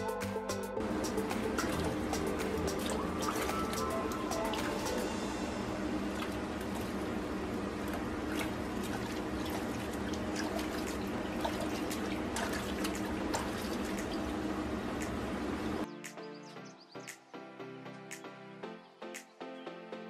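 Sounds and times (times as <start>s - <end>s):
water running into a bathtub: 0.8s - 15.3s
small splashes: 1.6s - 5.0s, 7.8s - 14.4s.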